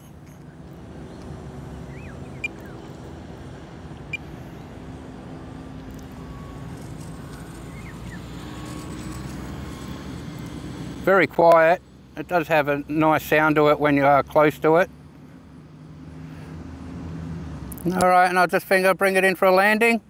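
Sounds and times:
model plane electric motor hum: 0:05.8 - 0:11.0.

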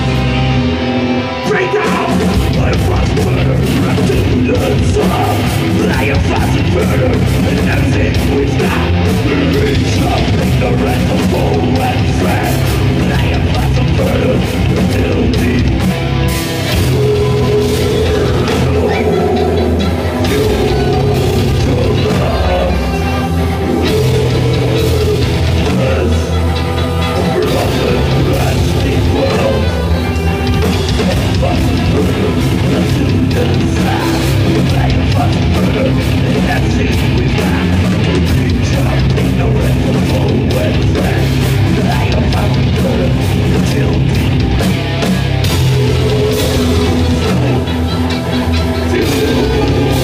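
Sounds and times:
drum kit: 0:00.0 - 0:50.0
electric guitars: 0:00.0 - 0:50.0.

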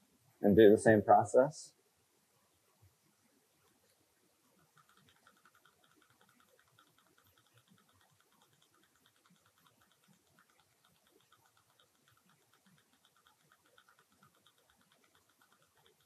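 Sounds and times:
faint quick irregular ticking: 0:04.6 - 0:16.0.

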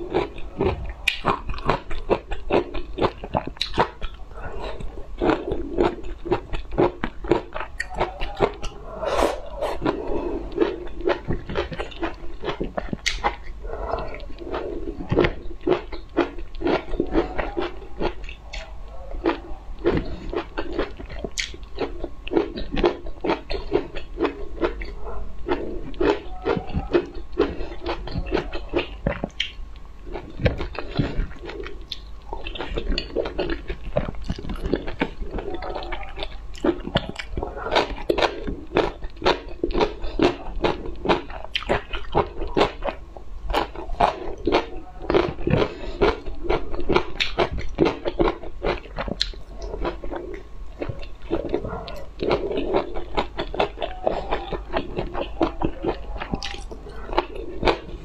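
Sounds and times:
chewing soft jelly sweets: 0:00.0 - 0:58.0.

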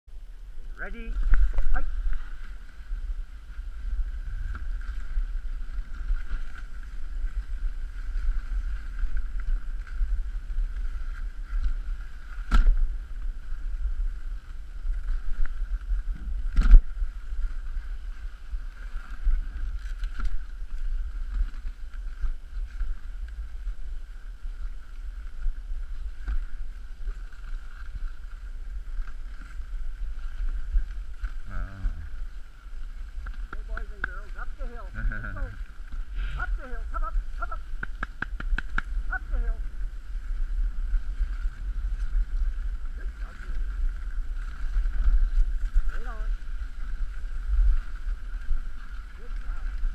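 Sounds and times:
wind rumble on microphone: 0:00.1 - 0:49.9
high hiss of sled runners: 0:30.5 - 0:42.3.

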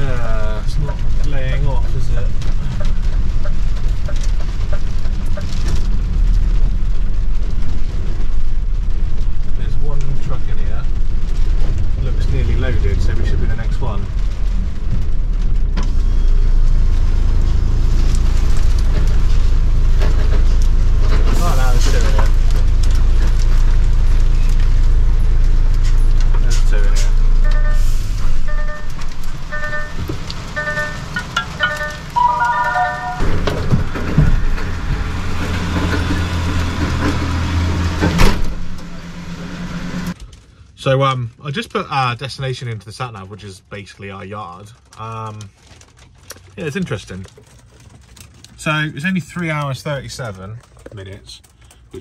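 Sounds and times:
truck engine rumble: 0:00.0 - 0:40.8
road noise: 0:00.0 - 0:52.0.

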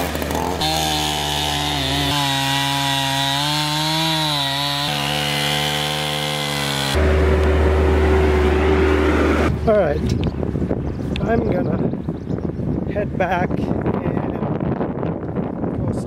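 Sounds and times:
chainsaw cutting through wood: 0:00.0 - 0:09.5
loader engine running: 0:04.6 - 0:10.3.

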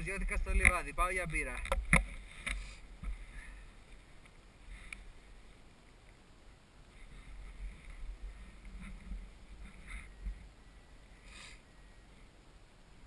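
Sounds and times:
wind rumble on microphone: 0:07.0 - 0:11.1.

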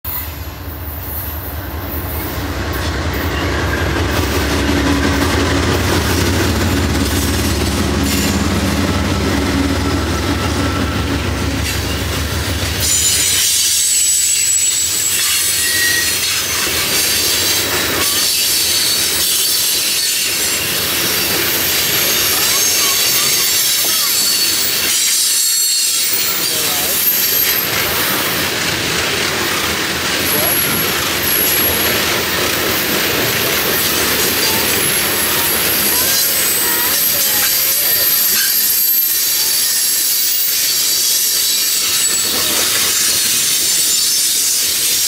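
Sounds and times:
diesel locomotive engine drone: 0:00.1 - 0:45.0
high wheel squeals: 0:06.1 - 0:28.7, 0:29.4 - 0:45.0
freight cars rumbling and rattling: 0:25.9 - 0:38.5.

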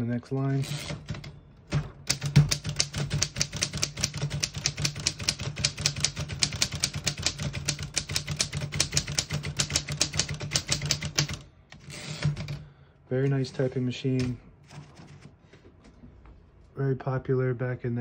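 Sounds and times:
typewriter key strikes: 0:02.1 - 0:11.4.

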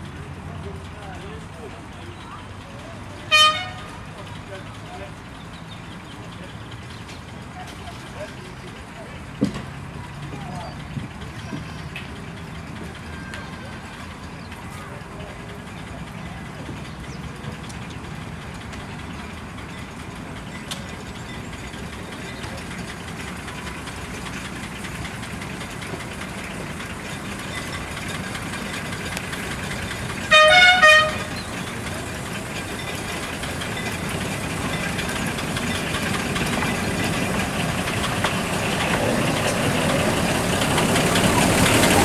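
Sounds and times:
locomotive engine running: 0:00.0 - 0:42.0
two-note horn blast: 0:30.3 - 0:31.3.

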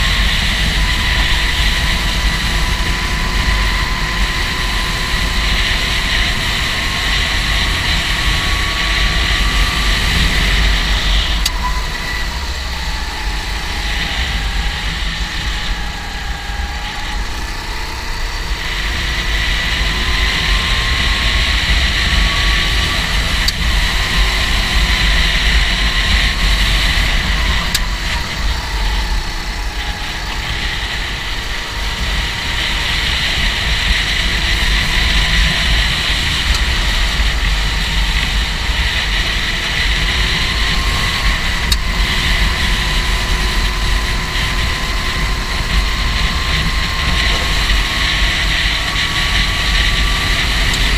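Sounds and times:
kart engine revving: 0:00.0 - 0:50.9
low rumble: 0:00.0 - 0:50.9.

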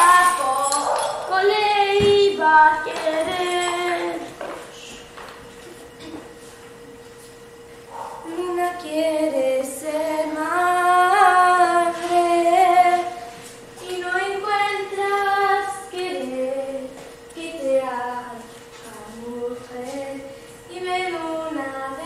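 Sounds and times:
woman singing unaccompanied: 0:00.0 - 0:04.4, 0:08.2 - 0:13.2, 0:13.8 - 0:22.0.

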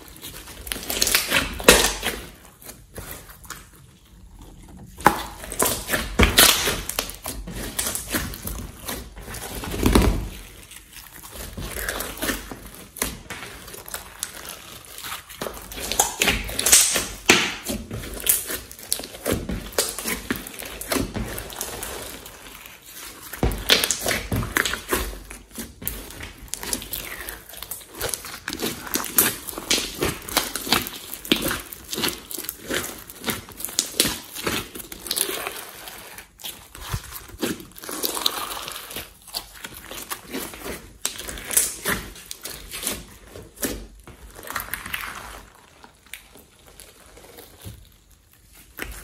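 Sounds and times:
slime squishing: 0:00.0 - 0:49.0
air pockets popping in slime: 0:00.3 - 0:03.0, 0:04.8 - 0:10.6, 0:11.2 - 0:22.5, 0:23.1 - 0:35.5.

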